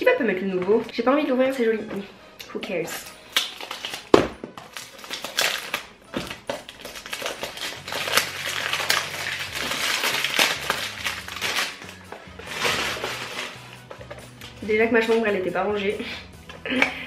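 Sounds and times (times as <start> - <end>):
cellophane crinkling: 3.0 - 14.0.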